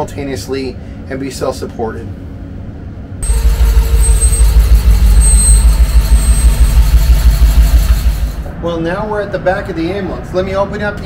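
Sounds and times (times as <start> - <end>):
ambulance engine idling: 3.2 - 8.5.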